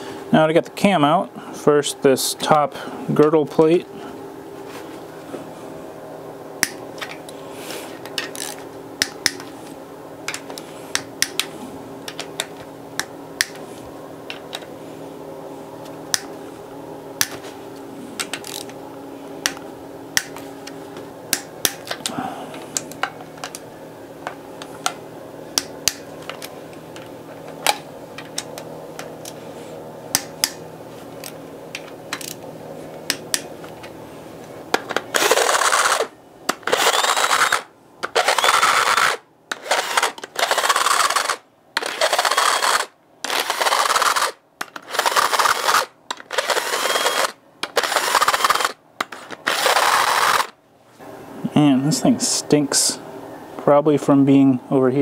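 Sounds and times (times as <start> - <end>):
steady low hum: 0.0 - 55.0
ratchet wrench clicking: 35.2 - 48.7.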